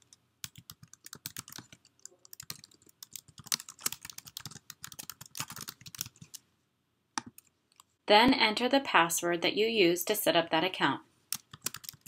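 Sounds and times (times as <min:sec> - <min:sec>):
computer keyboard typing: 0:00.0 - 0:06.4, 0:11.3 - 0:12.0.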